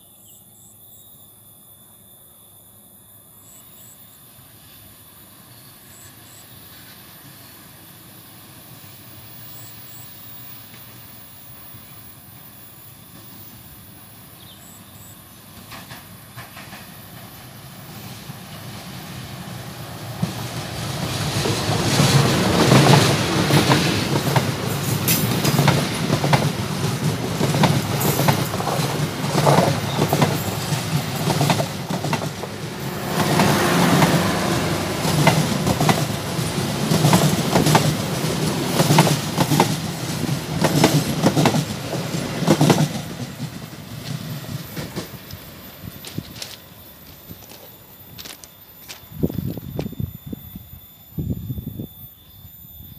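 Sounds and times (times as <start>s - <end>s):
train rumble: 3.4s - 52.9s.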